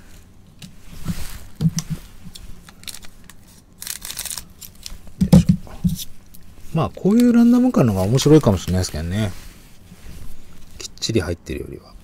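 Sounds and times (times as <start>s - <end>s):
cards rustling: 1.1s - 5.4s, 6.7s - 9.3s
wrapper crinkling: 1.2s - 5.2s, 6.3s - 9.3s
scissors cutting foil wrapper: 2.6s - 5.0s.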